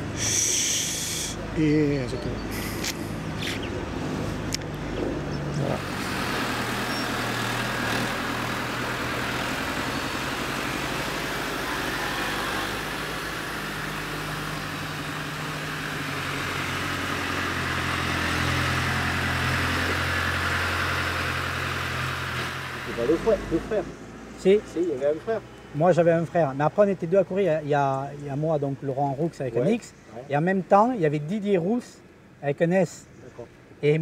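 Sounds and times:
tractor diesel engine running: 0:00.0 - 0:25.2.

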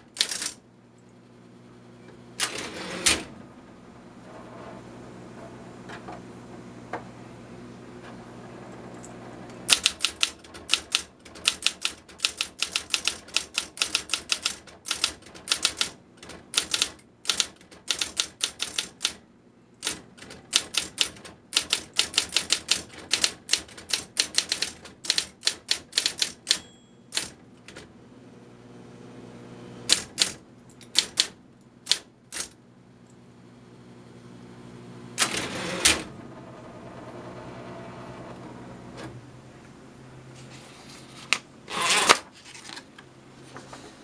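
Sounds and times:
typewriter motor hum: 0:00.0 - 0:00.6, 0:02.4 - 0:03.4, 0:08.4 - 0:19.2, 0:19.8 - 0:27.9, 0:29.8 - 0:32.6, 0:35.2 - 0:39.2, 0:41.7 - 0:42.8
typewriter typebar strikes: 0:00.1 - 0:00.6, 0:09.7 - 0:19.2, 0:19.8 - 0:27.9, 0:29.9 - 0:32.6.

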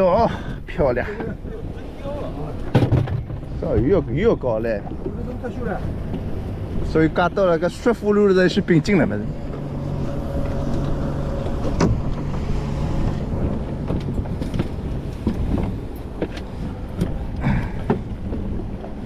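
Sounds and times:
boat motor humming: 0:00.0 - 0:19.0.

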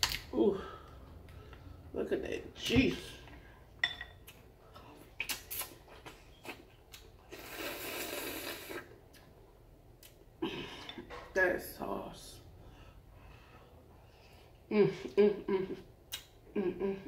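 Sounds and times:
slurping juice: 0:07.2 - 0:09.0.

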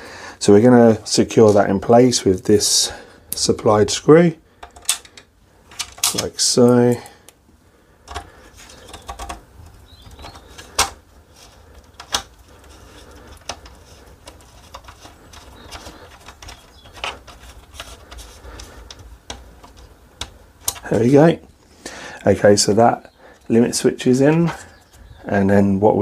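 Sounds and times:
hand-handling noise: 0:08.0 - 0:21.5.

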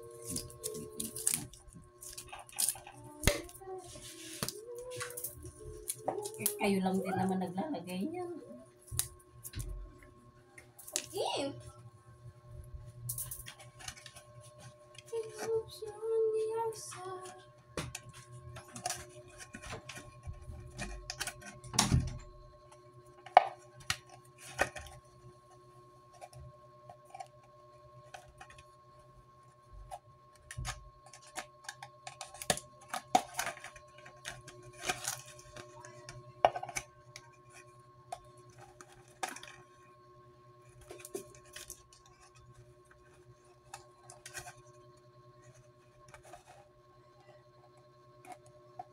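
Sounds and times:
plastic bottles crinkling and clicking: 0:00.1 - 0:03.6.

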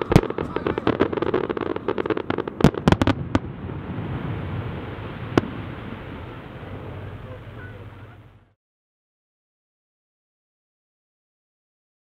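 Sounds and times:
fireworks bangs and crackles: 0:00.0 - 0:08.3
rumbling haze of fireworks: 0:00.0 - 0:08.6.

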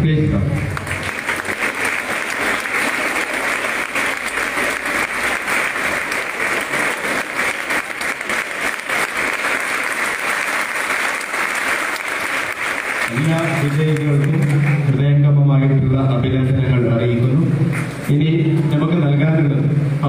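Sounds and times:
audience applauding: 0:00.6 - 0:15.0.

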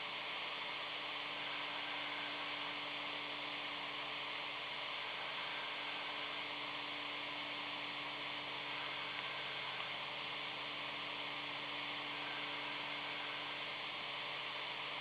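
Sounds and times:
low hum tone: 0:00.0 - 0:15.0
radio hiss: 0:00.0 - 0:15.0.

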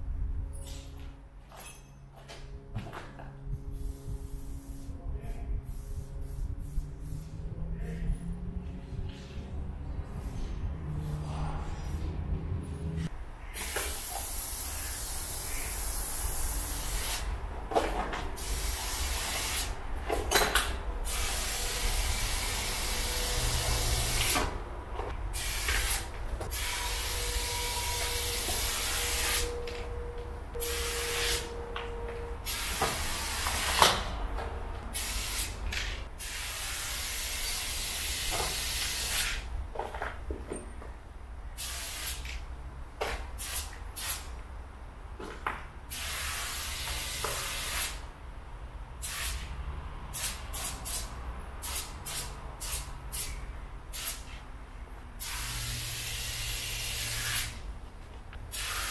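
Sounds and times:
spray paint can hissing: 0:03.7 - 0:04.9, 0:05.6 - 0:07.4, 0:13.5 - 0:17.3, 0:18.4 - 0:19.8, 0:21.0 - 0:24.4, 0:25.3 - 0:29.5, 0:30.6 - 0:31.5, 0:32.4 - 0:33.9, 0:34.9 - 0:35.6, 0:36.2 - 0:39.5, 0:41.6 - 0:42.4, 0:43.4 - 0:44.3, 0:45.9 - 0:48.0, 0:49.0 - 0:49.5, 0:50.2 - 0:54.4, 0:55.2 - 0:57.6, 0:58.5 - 0:58.9.

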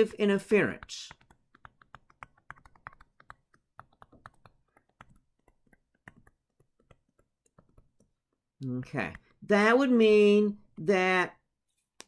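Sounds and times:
stylus tapping on tablet screen: 0:00.6 - 0:09.4.

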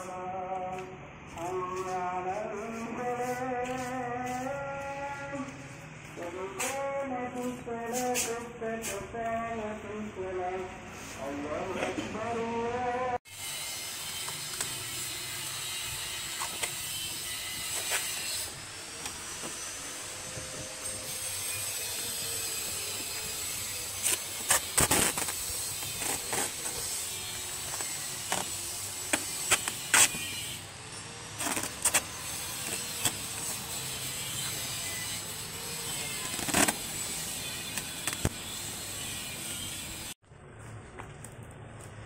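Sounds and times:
packing tape ripping: 0:24.0 - 0:27.0, 0:27.6 - 0:30.3, 0:31.4 - 0:33.6, 0:36.2 - 0:38.4.

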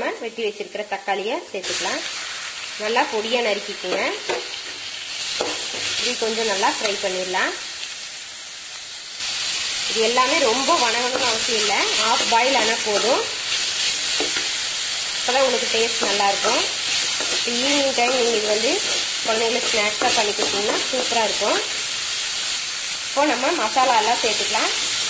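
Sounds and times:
onions sizzling in hot oil: 0:00.0 - 0:25.0
metal spoon scraping a pan: 0:03.8 - 0:07.0, 0:10.3 - 0:14.6, 0:15.3 - 0:21.5.

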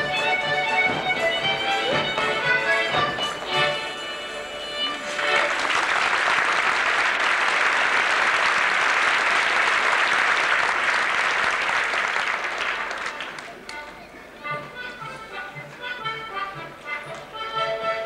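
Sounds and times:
live folk dance music: 0:00.0 - 0:18.0
audience applauding: 0:05.0 - 0:13.7.

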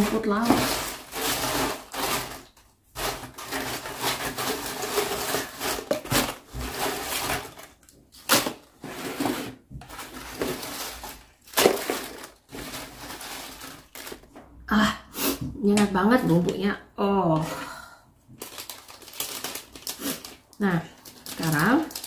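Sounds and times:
potato chips rustling and crackling: 0:00.0 - 0:14.3, 0:18.4 - 0:22.0
chips crunching: 0:10.3 - 0:14.3, 0:18.4 - 0:20.5.

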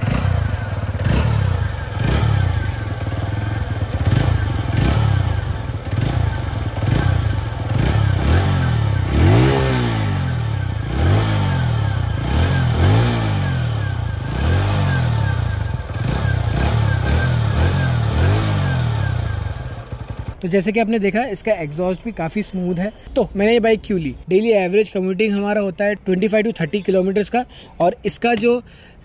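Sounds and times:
motorcycle engine revving: 0:00.0 - 0:20.4.

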